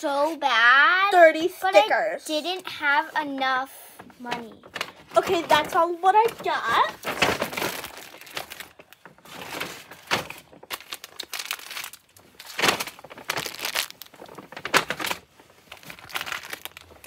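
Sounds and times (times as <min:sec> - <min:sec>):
paper bag rustling and crinkling: 0:04.0 - 0:17.0.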